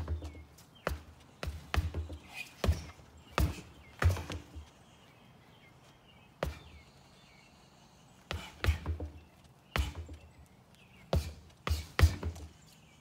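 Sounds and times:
gloves punching rubber tires: 0.0s - 4.7s, 8.3s - 10.3s, 11.1s - 12.5s.

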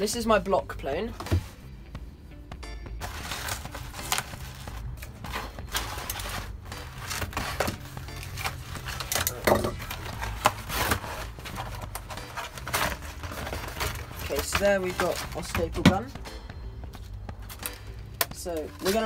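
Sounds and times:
cardboard being handled: 3.0s - 16.2s
knife cutting cardboard: 5.4s - 15.5s.

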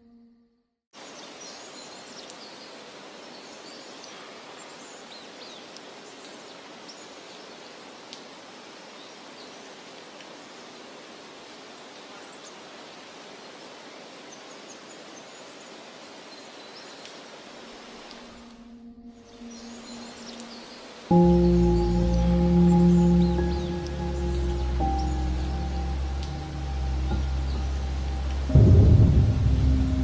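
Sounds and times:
wind through trees: 1.0s - 30.0s
bird chirps: 18.5s - 30.0s.

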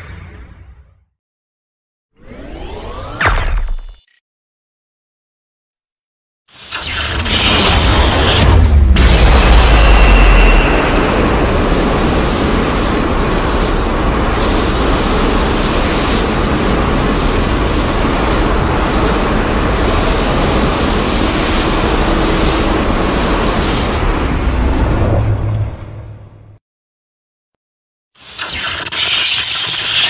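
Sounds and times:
dense rushing sound effect: 7.9s - 26.6s.

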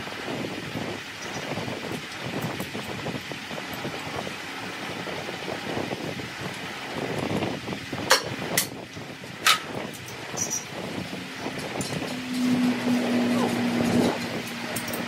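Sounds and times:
workshop background rumble: 0.0s - 15.0s.

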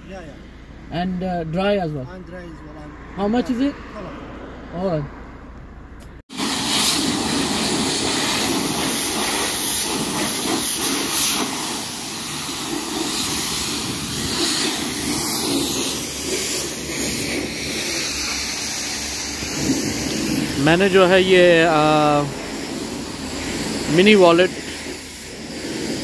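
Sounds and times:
pressure washer spraying water: 6.3s - 26.0s.

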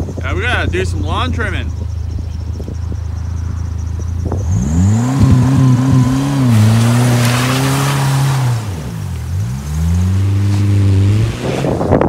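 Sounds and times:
car engine revving: 1.2s - 12.0s.

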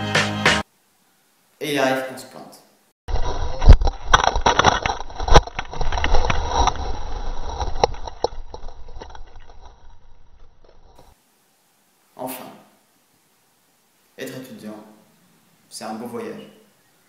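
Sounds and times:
bike rattling and scraping on dirt: 3.1s - 11.2s.

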